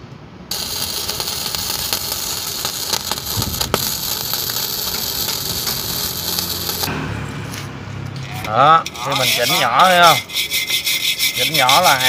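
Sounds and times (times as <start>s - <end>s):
welding arc crackling sizzle: 0.5s - 10.2s.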